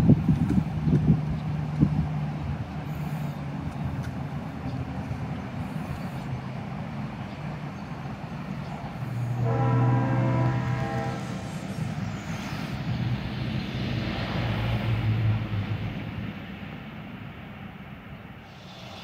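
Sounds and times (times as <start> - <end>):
low engine rumble: 0.0 - 19.0
horn-like chord: 9.4 - 11.5.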